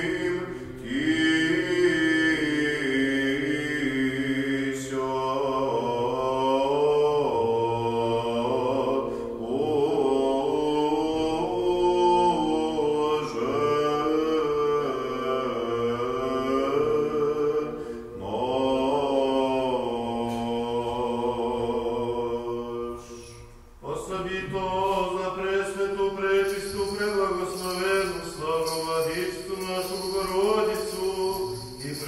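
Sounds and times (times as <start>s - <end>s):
men chanting: 23.8s - 32.0s.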